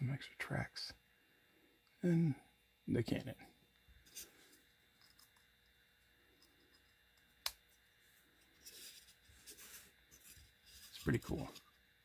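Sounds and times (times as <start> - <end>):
soft rubbing on play mat: 8.0 - 11.6.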